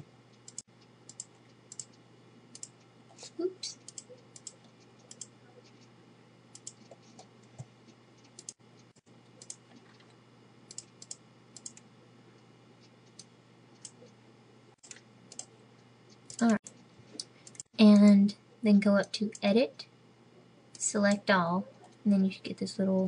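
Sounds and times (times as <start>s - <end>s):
low steady hum: 0.0s - 23.0s
computer mouse clicks: 0.3s - 2.9s, 3.8s - 5.9s, 6.5s - 11.9s, 12.8s - 14.2s, 14.8s - 15.5s, 16.1s - 18.1s.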